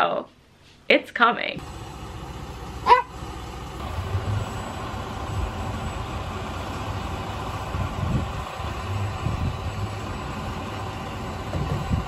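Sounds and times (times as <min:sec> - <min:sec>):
truck engine idling: 0:01.6 - 0:12.0
short high call: 0:02.8 - 0:03.2.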